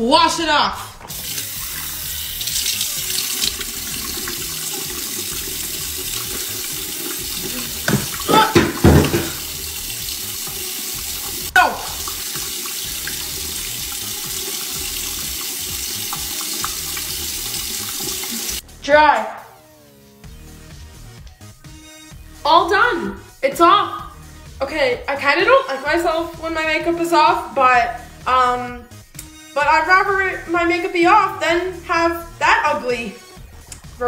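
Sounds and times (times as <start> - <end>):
tap running into sink: 1.0 - 18.6.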